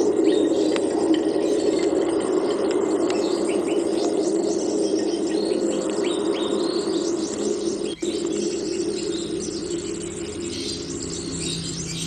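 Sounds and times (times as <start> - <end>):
dense insect drone: 0.0 - 12.0
bird chirps and calls: 3.2 - 12.0.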